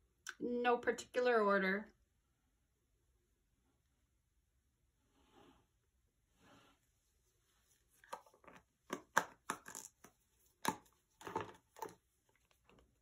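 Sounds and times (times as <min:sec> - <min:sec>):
plastic cups and bottles clattering: 0:10.7 - 0:12.0.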